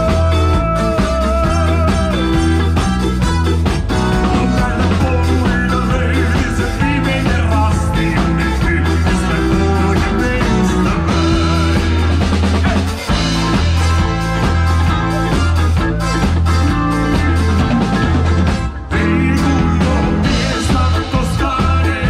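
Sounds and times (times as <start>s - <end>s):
man singing: 0.0s - 3.0s, 3.9s - 13.4s, 18.9s - 22.0s
rock band playing: 0.0s - 22.0s.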